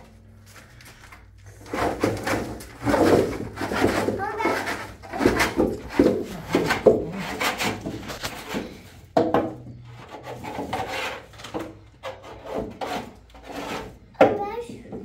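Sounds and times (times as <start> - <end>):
trowel scraping plaster: 1.5 - 9.1, 9.7 - 14.2.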